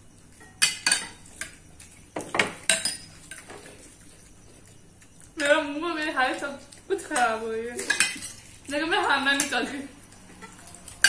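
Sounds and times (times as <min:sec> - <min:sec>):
metal spoons clinking on bowls: 0:00.3 - 0:03.8, 0:06.3 - 0:11.0.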